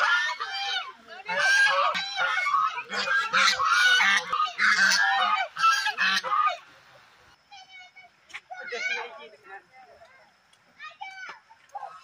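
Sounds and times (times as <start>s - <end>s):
geese honking: 0.0s - 6.7s.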